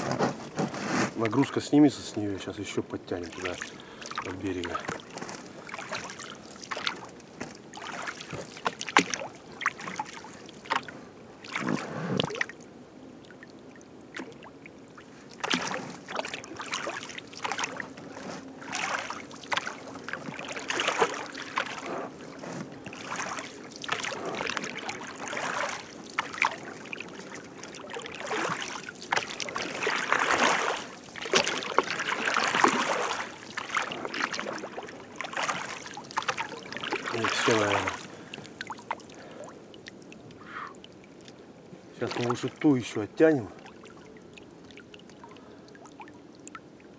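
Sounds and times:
oars splashing in water: 3.1 - 12.6, 13.2 - 46.7.

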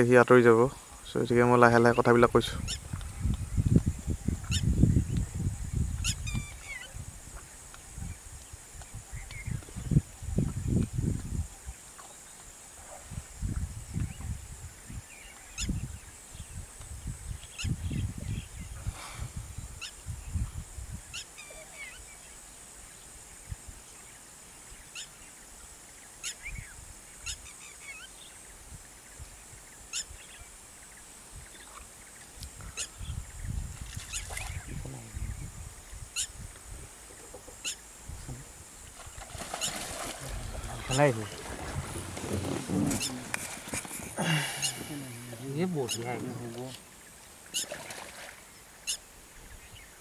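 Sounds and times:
steady high hiss: 0.0 - 47.7
birds chirping and calling: 1.2 - 7.0, 13.9 - 16.6, 29.6 - 36.5, 37.1 - 37.9, 39.1 - 47.9.

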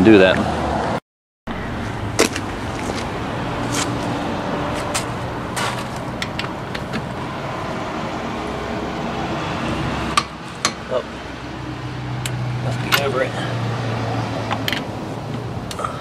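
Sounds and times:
outdoor background hum: 1.5 - 16.0
footsteps on gravel: 2.2 - 6.2.

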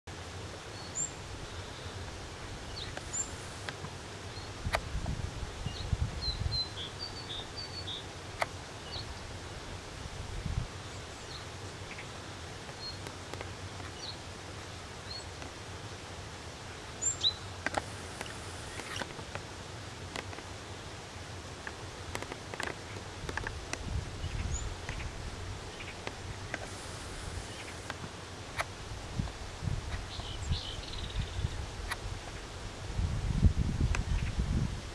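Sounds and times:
steady hiss and low rumble: 0.1 - 34.9
small birds chirping: 0.8 - 4.6, 5.6 - 8.1, 17.0 - 19.2, 22.1 - 28.0, 29.9 - 32.4.

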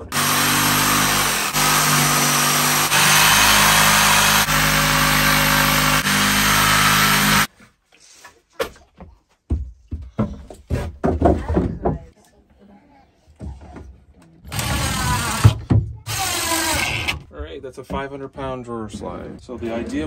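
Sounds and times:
jigsaw cutting wood: 0.0 - 7.5, 14.5 - 17.2
wood knocking: 9.0 - 12.1.

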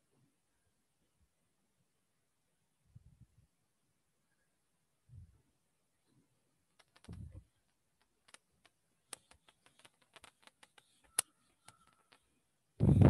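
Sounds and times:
marker on whiteboard: 9.2 - 12.3.

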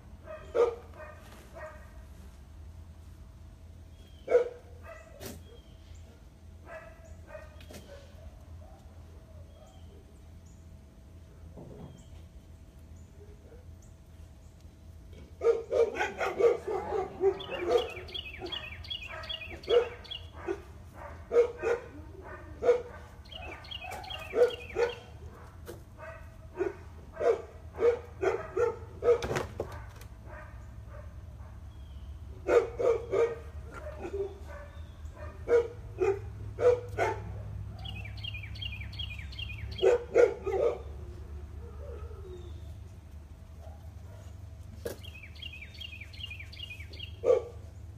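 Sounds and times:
dog barking: 0.2 - 2.0, 4.2 - 8.9, 15.4 - 31.6, 32.4 - 38.2, 39.7 - 41.0, 47.0 - 47.6.

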